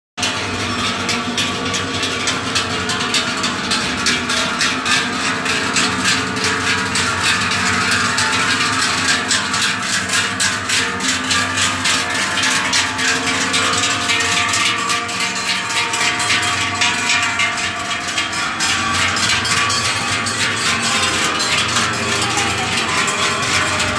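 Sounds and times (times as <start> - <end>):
cowbells clanging: 0.2 - 23.9.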